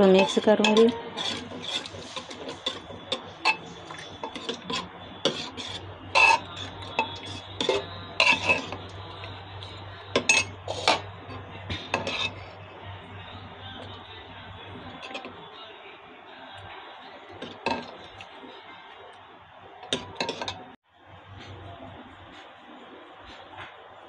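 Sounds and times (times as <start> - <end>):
metal spoon scraping metal pot: 0.0 - 12.6, 14.7 - 15.4, 17.4 - 18.3, 19.9 - 20.7.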